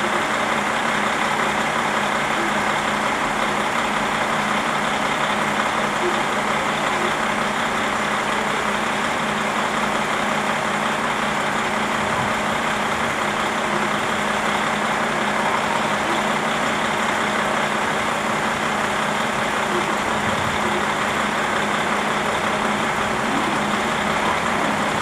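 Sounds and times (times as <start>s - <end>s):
diesel railcar engine idling: 0.0s - 25.0s.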